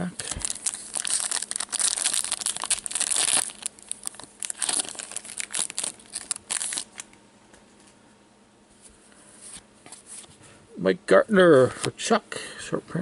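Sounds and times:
wrapper crinkling and tearing: 0.1 - 7.1.

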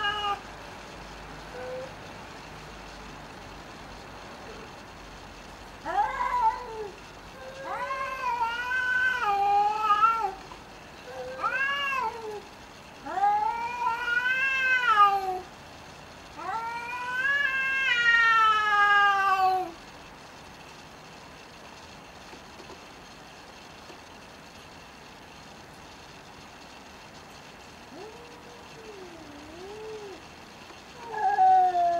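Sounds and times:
cats yowling: 0.0 - 0.4, 1.5 - 2.0, 5.8 - 10.4, 11.0 - 15.5, 16.4 - 19.8, 27.9 - 30.3, 30.9 - 31.9.

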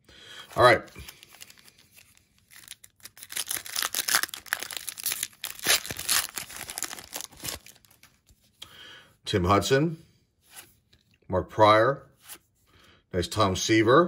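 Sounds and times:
foil wrapper tearing and crinkling: 1.0 - 8.2.

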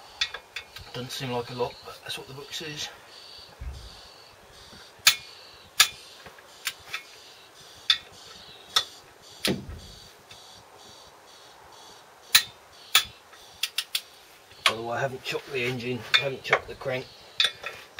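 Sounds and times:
torque wrench clicks: 12.3 - 14.1.

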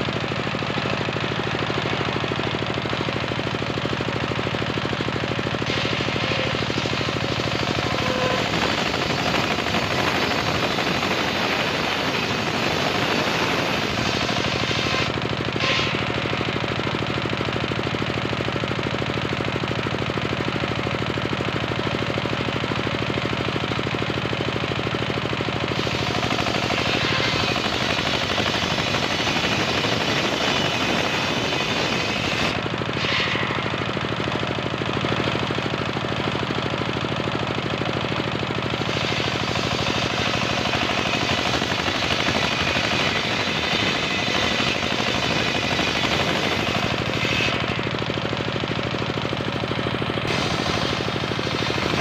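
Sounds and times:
circular saw cutting wood: 0.0 - 17.3, 25.5 - 37.1, 38.3 - 49.5, 50.2 - 52.0
high-pitched saw whine: 5.6 - 16.4, 25.7 - 34.2, 38.8 - 48.0.

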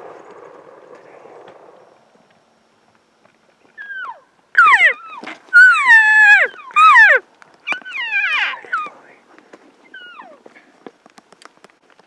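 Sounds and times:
elk mews: 3.8 - 9.0.

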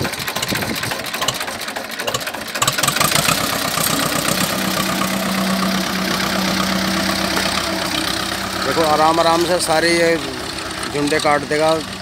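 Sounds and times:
tractor diesel engine running: 0.0 - 12.0
steady hum: 3.2 - 11.0.

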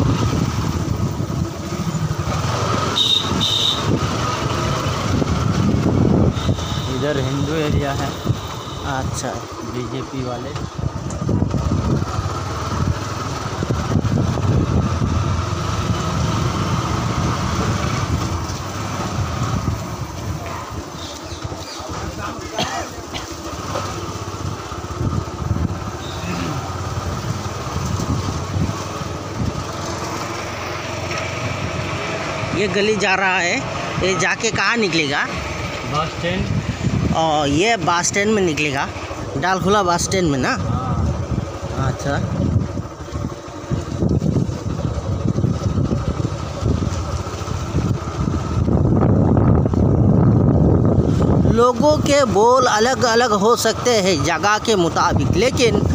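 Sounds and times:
wind buffeting microphone: 0.0 - 2.6, 3.3 - 7.2, 10.6 - 22.4, 24.2 - 30.2, 36.2 - 38.0, 39.2 - 53.6, 54.2 - 55.9
vehicle rumble: 0.0 - 55.9.

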